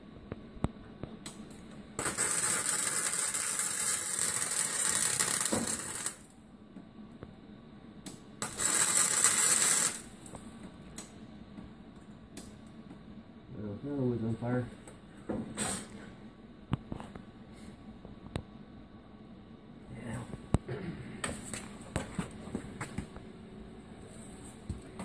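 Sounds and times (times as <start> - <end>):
welder arc crackling: 2.0 - 6.4, 8.0 - 10.4.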